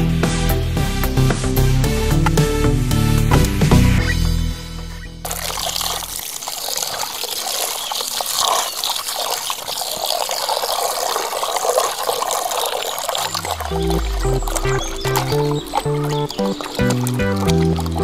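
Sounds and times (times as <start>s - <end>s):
water pouring into bowl: 5.2s - 18.0s
hands rubbing meat in water: 5.3s - 18.0s.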